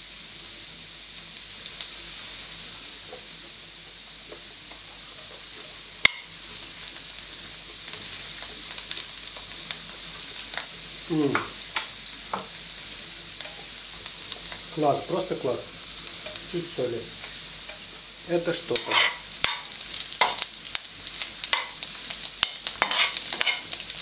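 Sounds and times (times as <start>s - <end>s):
mushrooms sizzling in a pan: 0.0s - 24.0s
knife scraping in a pan: 18.7s - 20.4s, 21.5s - 21.8s, 22.4s - 23.8s.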